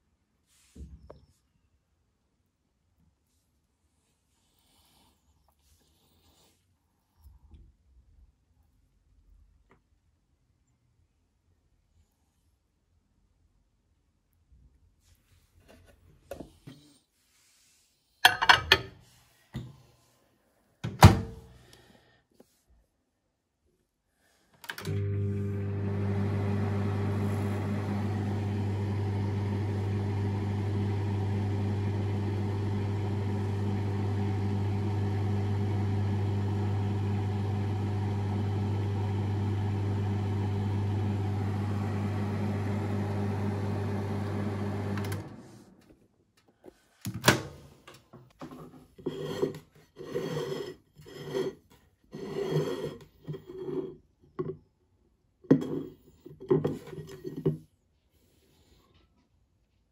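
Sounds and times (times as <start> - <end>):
microwave oven humming: 24.8 - 45.7.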